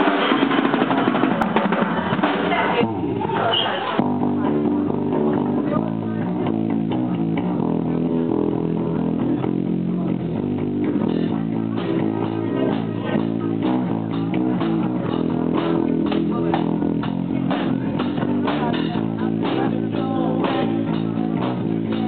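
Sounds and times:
bass guitar: 0.0s - 22.0s
drum beat of sharp hits: 0.0s - 22.0s.

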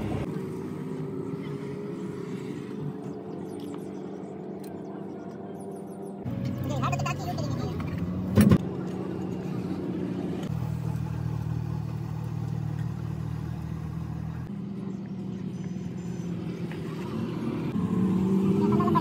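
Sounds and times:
engine idling: 8.6s - 16.3s.

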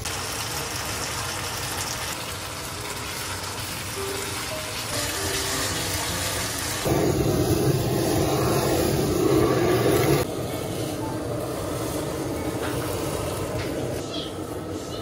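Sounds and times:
food sizzling in a wok: 0.0s - 15.0s
blow torch flame rushing: 6.7s - 14.0s.

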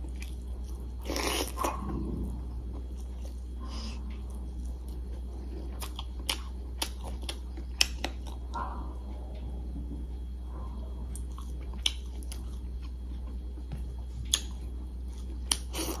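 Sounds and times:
steady low hum: 0.0s - 16.0s
person chewing with mouth clicks: 2.7s - 8.6s, 11.1s - 13.4s, 14.2s - 16.0s.

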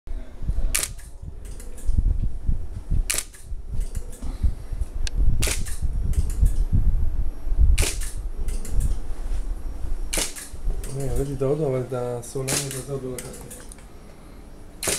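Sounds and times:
low rumble: 0.2s - 10.8s
camera shutter firing: 0.7s - 1.9s, 3.1s - 4.0s, 5.4s - 6.6s, 7.8s - 8.9s, 10.1s - 10.6s, 12.5s - 12.9s.

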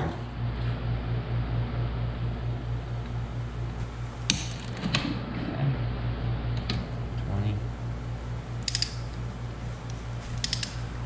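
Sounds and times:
steady low hum: 0.0s - 11.0s
wrench metallic clicks: 8.6s - 9.1s, 10.4s - 10.8s.

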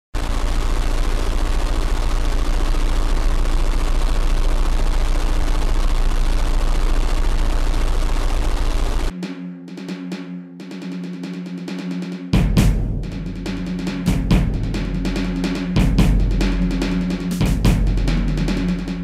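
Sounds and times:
faint hum: 0.2s - 9.1s, 12.4s - 19.0s
static hiss: 0.2s - 9.2s, 13.1s - 19.0s.

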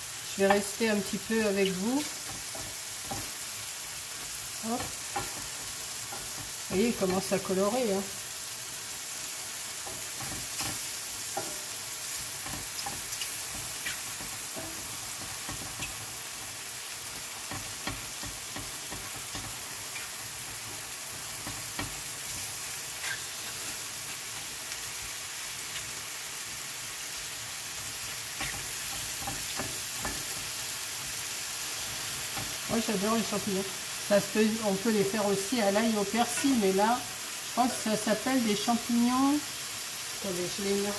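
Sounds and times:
mushrooms sizzling in a frying pan: 0.0s - 40.9s
wooden spoon scraping a pan: 36.2s - 36.8s.

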